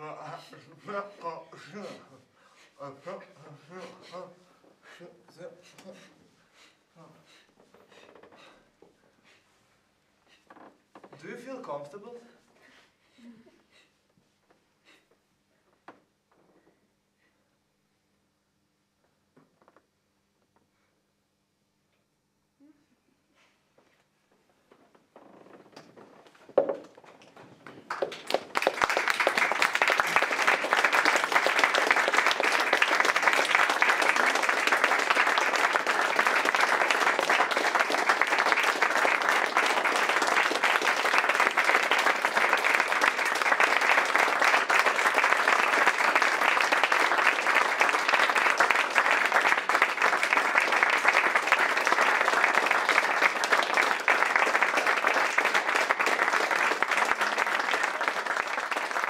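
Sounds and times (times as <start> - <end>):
audience applause: 27.8 - 59.0.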